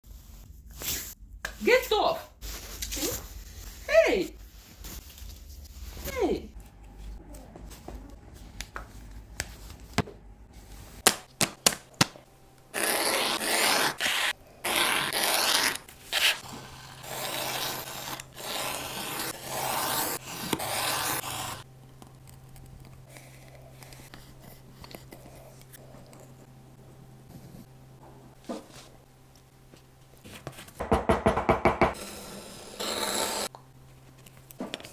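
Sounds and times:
knife blade scraping leather: 12.8s - 21.6s.

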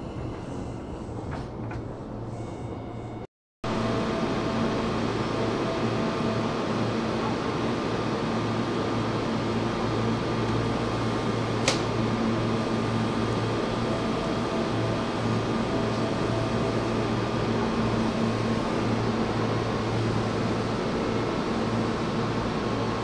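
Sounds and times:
train equipment humming: 0.0s - 23.0s
sharp click: 11.6s - 11.9s.

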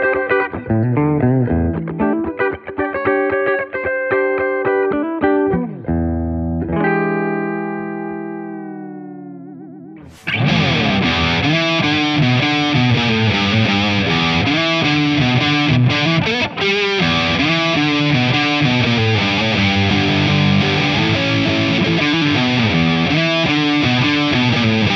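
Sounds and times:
overdriven guitar lead line: 0.0s - 24.9s
clean electric guitar chord: 10.3s - 24.9s.

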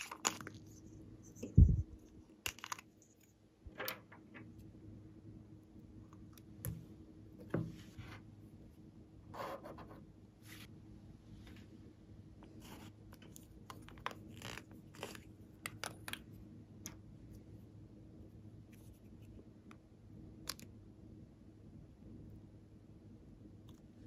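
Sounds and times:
faint steady hum: 0.0s - 24.0s
plastic spatula scraping balm: 12.5s - 15.3s.

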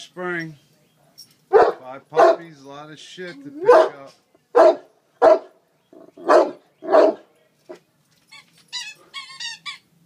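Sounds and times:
dog barking deeply: 1.5s - 2.5s, 3.5s - 7.3s.

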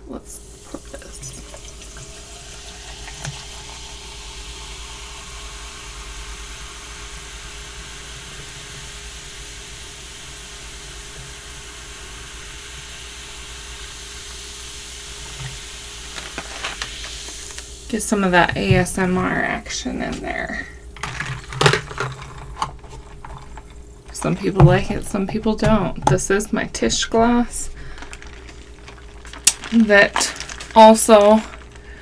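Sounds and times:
water pouring into plastic tumbler: 0.5s - 9.1s, 12.8s - 17.7s, 21.0s - 32.0s.

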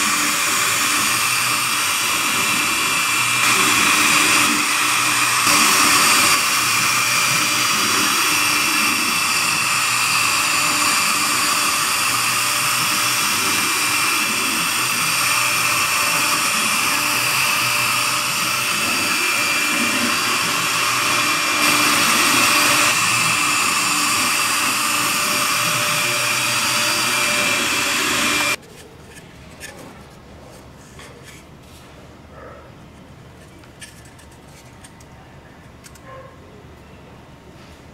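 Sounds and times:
bit cutting wood: 0.0s - 28.6s
router spindle whining: 0.0s - 28.6s.

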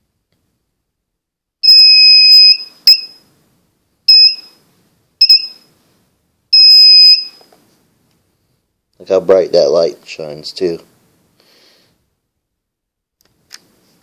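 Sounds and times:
metal detector beeping: 1.6s - 3.2s, 4.1s - 4.6s, 5.2s - 5.7s, 6.6s - 7.4s.

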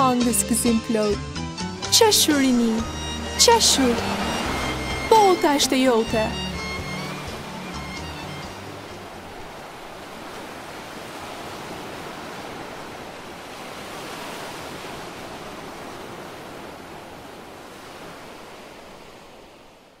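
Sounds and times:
steady rushing noise: 2.0s - 13.4s.

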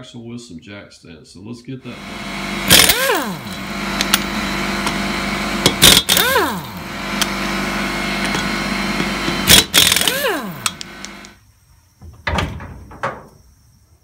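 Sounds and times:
steady machine hum: 1.8s - 11.4s
impact wrench spinning down: 1.9s - 11.4s
impact wrench hammering: 2.0s - 11.4s.

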